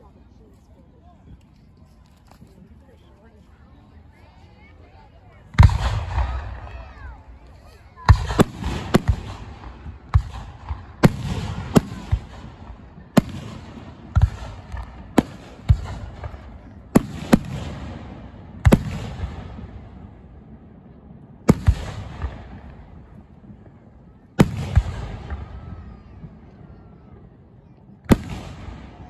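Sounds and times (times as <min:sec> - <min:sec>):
firework bangs: 0:05.5 - 0:07.3, 0:07.9 - 0:20.2, 0:21.4 - 0:26.5, 0:28.1 - 0:29.0.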